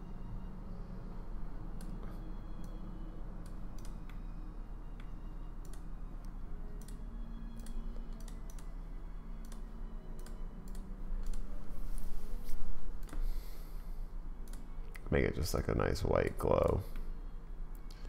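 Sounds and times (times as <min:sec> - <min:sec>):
faint low hum: 0:00.0 - 0:18.0.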